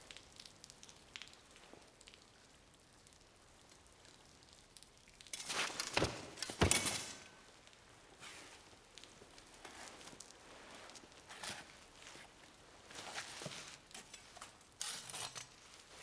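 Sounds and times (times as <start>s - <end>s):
faint crackles: 0.0s - 16.0s
body thudding on stone floor: 5.6s - 7.2s.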